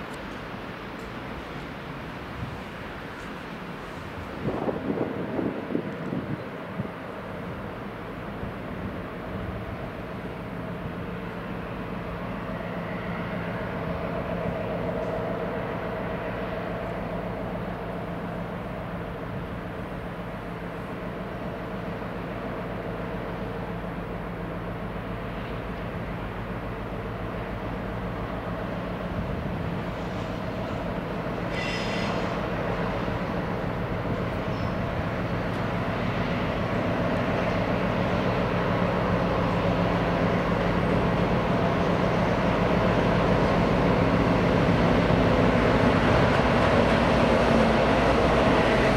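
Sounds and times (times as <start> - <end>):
diesel train engine hum: 0.0 - 48.9
high-pitched squeal: 31.5 - 32.4.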